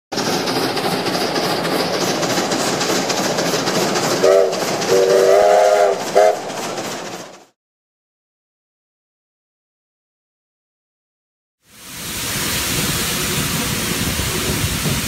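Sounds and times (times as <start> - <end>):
steam locomotive running: 0.1 - 7.6, 11.7 - 15.0
steam whistle: 4.2 - 6.5.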